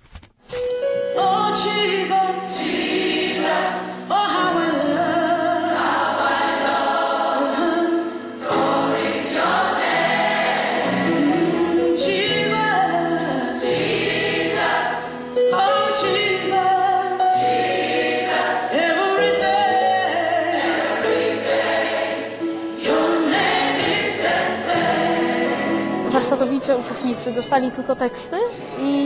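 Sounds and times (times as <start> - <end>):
woman singing into microphone: 1.2 - 2.6, 4.1 - 5.7, 11.1 - 13.7, 15.4 - 17.4, 18.7 - 20.5
gospel choir singing: 1.5 - 26.7.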